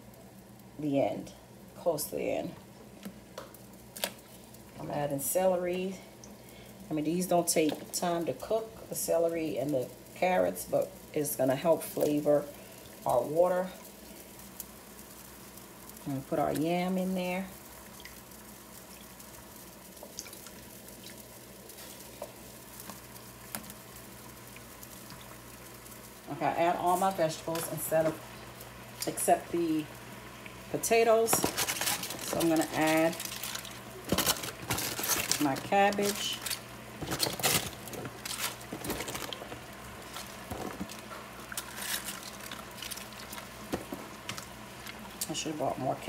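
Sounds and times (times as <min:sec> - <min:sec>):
steady low hum: 0:00.0 - 0:46.0
soup bubbling: 0:17.6 - 0:45.4
cabbage leaves crinkling: 0:31.1 - 0:45.4.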